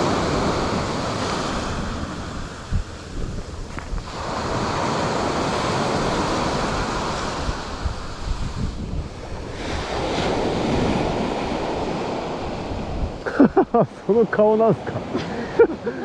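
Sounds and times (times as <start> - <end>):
surf washing onto shore: 0.0 - 16.0
wind buffeting microphone: 0.0 - 16.0.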